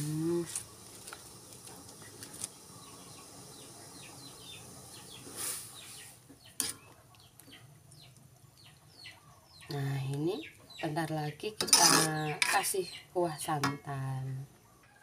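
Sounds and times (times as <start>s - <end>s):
small birds chirping: 2.4s - 13.6s
brief hiss: 5.2s - 6.2s
spatula stirring in pan: 6.6s - 6.9s.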